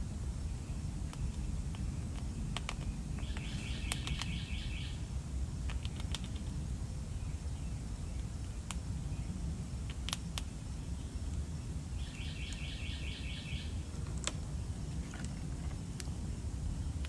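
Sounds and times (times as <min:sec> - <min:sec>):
sharp clicks: 0:01.1 - 0:04.3, 0:05.6 - 0:06.5
bird trilling: 0:03.2 - 0:05.0, 0:12.0 - 0:13.8.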